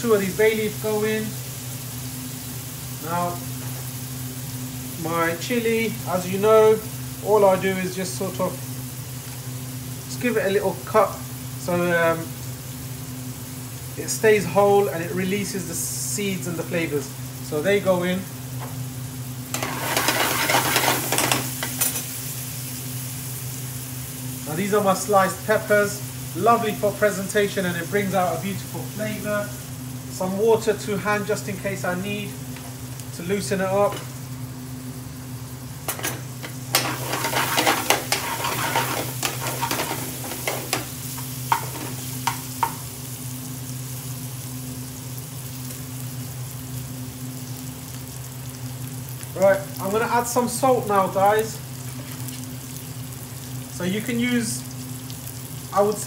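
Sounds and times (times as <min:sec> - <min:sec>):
food sizzling in oil: 0:00.0 - 0:56.0
steady low hum: 0:00.0 - 0:56.0
metal ladle scraping pan: 0:19.6 - 0:22.0, 0:35.9 - 0:40.9.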